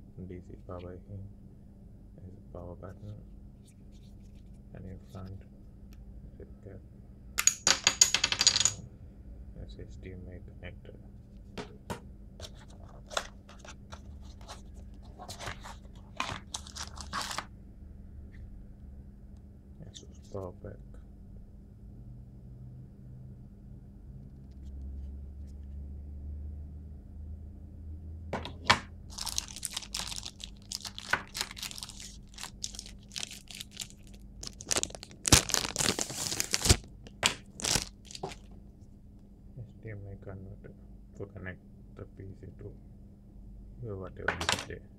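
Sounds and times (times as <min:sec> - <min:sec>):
packaging wrapper crinkling: 0:15.2 - 0:17.5, 0:29.1 - 0:38.5.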